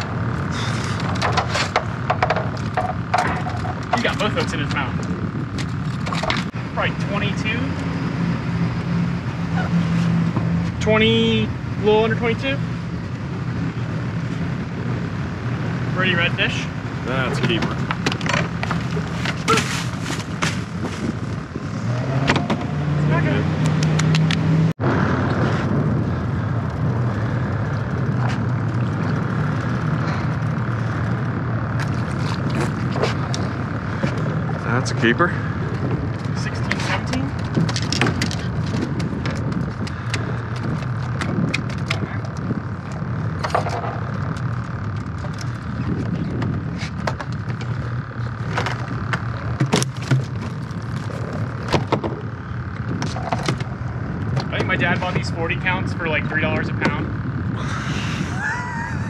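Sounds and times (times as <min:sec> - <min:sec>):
low engine rumble: 0:00.0 - 0:59.0
steady low hum: 0:00.0 - 0:59.0
knocks and clatter of fishing gear: 0:00.9 - 0:06.6, 0:17.4 - 0:21.3, 0:36.2 - 0:52.2, 0:52.8 - 0:55.0.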